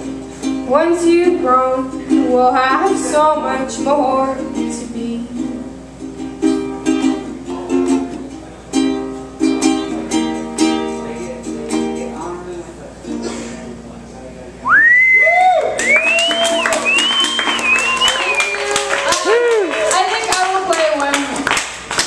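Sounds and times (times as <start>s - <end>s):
ukulele strumming: 0.0s - 14.1s, 16.2s - 19.3s
woman singing: 0.7s - 5.8s.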